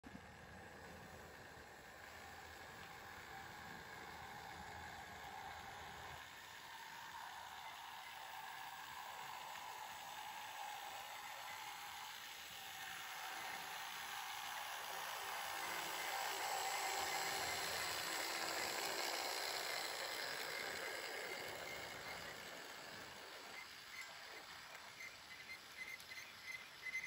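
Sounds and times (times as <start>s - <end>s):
model train motors whirring: 0.0s - 27.0s
wheels rattling on track: 0.1s - 27.0s.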